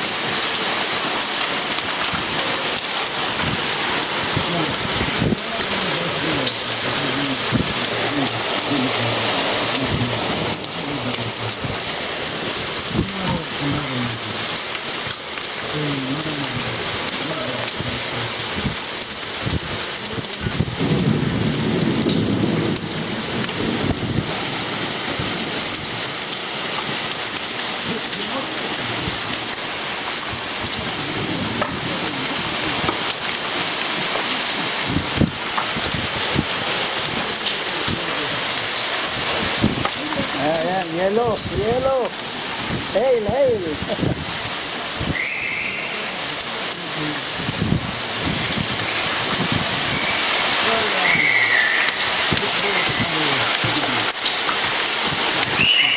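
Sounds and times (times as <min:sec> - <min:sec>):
rain downpour hiss: 0:00.0 - 0:55.9
hailstones striking hard surfaces: 0:16.7 - 0:55.9.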